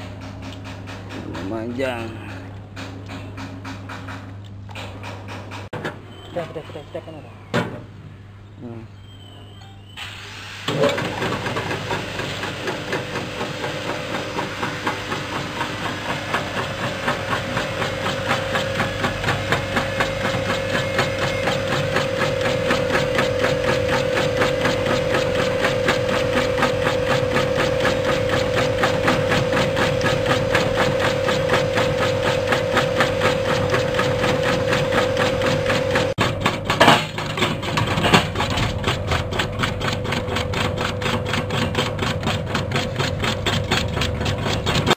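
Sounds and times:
slicing machine motor humming: 10.7 - 44.9
fast chopping rhythm: 11.6 - 44.9.

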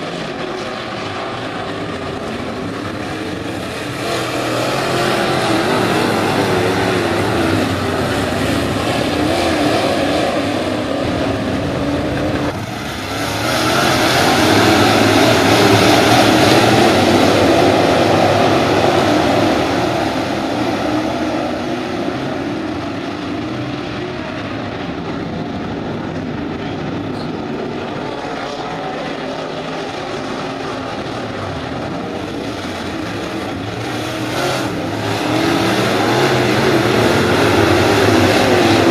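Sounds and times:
race car engines revving: 0.0 - 38.9.

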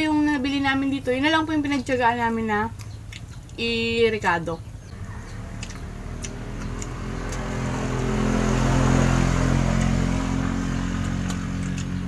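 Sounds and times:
vehicle engine passing by: 4.9 - 12.0.

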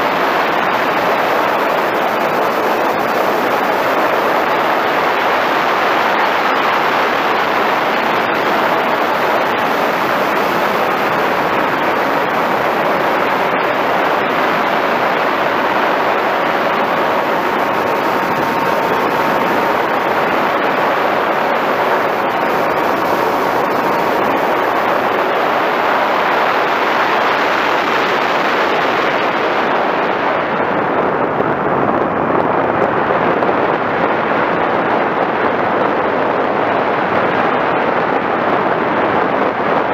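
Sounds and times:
electric motor and propeller: 0.0 - 29.6
faint steady whine: 0.0 - 39.9
rush of airflow: 0.0 - 39.9.

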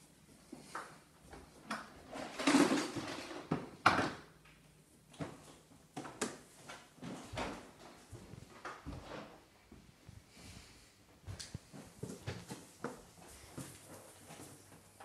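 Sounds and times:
footsteps on wooden stairs: 7.0 - 10.4, 11.1 - 15.0.

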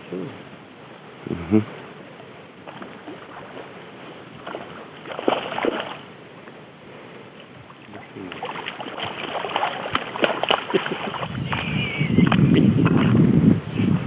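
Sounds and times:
fish thrashing and splashing: 4.4 - 6.1, 8.3 - 13.1.

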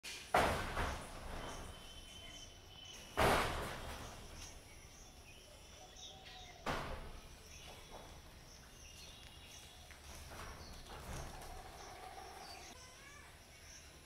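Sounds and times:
birds chirping: 0.1 - 14.0
sudden thump: 3.1 - 4.4, 6.6 - 7.3.

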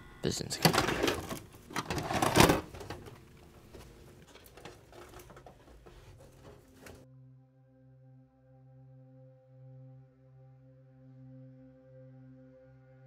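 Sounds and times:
dense clicking and clattering: 0.5 - 7.0.

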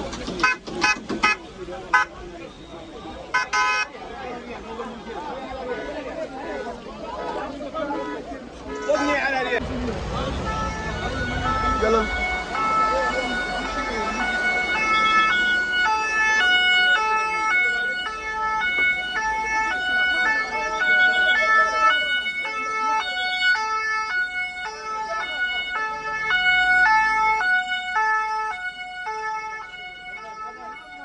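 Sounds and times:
faint voices: 0.0 - 31.0
two-tone siren: 0.4 - 3.9, 10.2 - 31.0.

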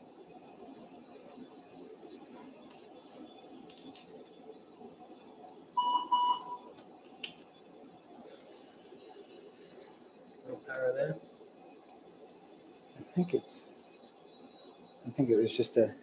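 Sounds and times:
faint room noise: 0.0 - 16.0
short electronic beeps: 5.8 - 6.7.

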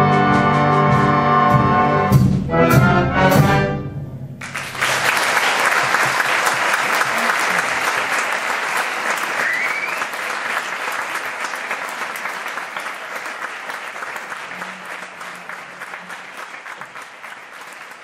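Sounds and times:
audience applauding: 4.4 - 18.0
rising whistle from crowd: 9.3 - 10.2.

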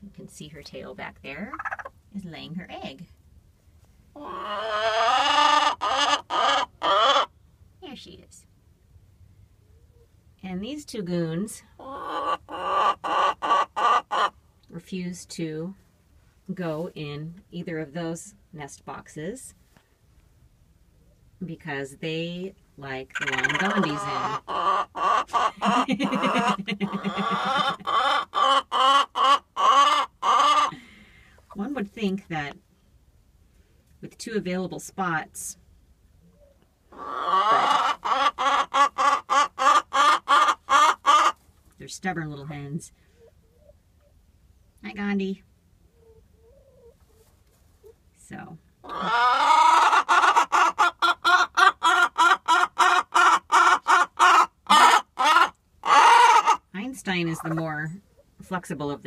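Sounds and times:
hen clucking and squawking: 1.5 - 2.0, 4.2 - 7.3, 11.8 - 14.4, 23.1 - 30.8, 36.3 - 41.4, 48.8 - 56.7.

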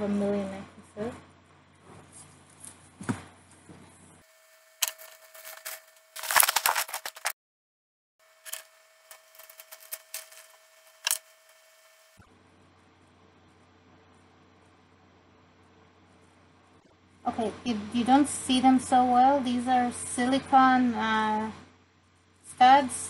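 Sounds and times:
plastic bags crinkling: 4.8 - 7.4, 8.5 - 10.6.

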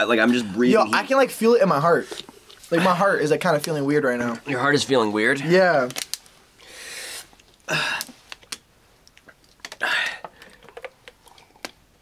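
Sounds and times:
plastic bottle crinkling: 5.7 - 6.4, 7.4 - 11.8.

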